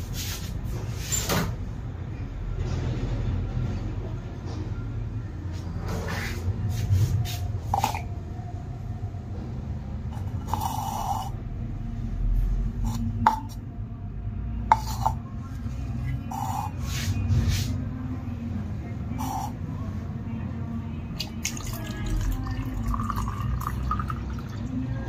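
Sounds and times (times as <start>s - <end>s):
cups knocking and clinking: 7.7s - 8.1s, 10.2s - 11.3s, 12.9s - 13.6s, 14.7s - 15.2s, 21.4s - 24.5s.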